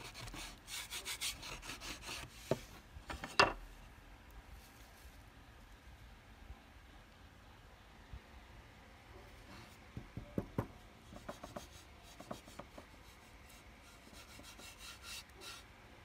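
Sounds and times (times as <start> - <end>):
wood rubbing and scraping: 0.0 - 3.6.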